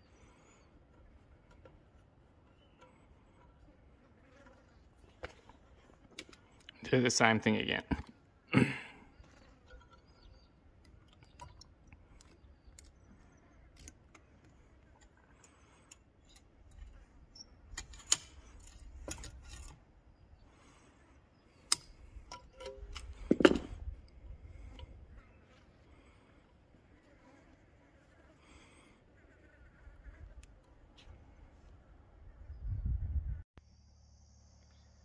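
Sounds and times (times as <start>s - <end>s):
pliers clicking on wire: 17.7s - 19.8s, 21.6s - 23.2s.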